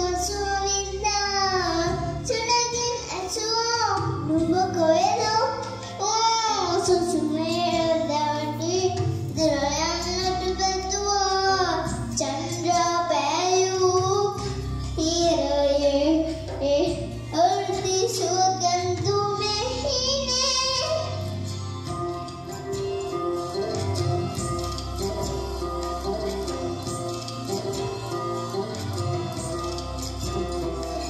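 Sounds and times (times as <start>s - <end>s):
girl singing into a microphone: 0.0s - 22.0s
instrumental backing track: 0.0s - 31.0s.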